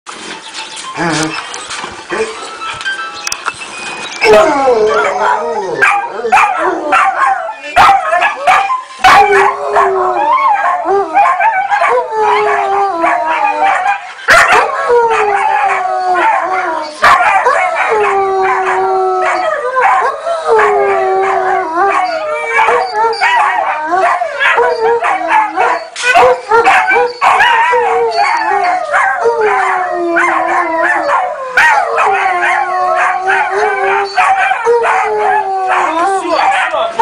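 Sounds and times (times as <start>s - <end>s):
puppies howling and yipping: 3.8s - 37.0s
dog howling long notes: 4.2s - 7.6s, 8.3s - 14.0s, 14.6s - 36.4s.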